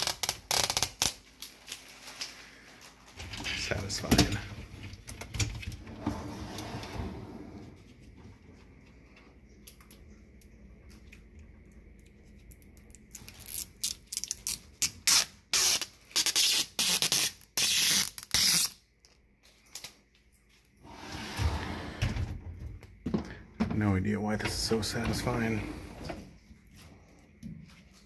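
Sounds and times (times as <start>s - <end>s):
plastic film peeling crackle: 0.0s - 3.2s, 12.8s - 20.0s.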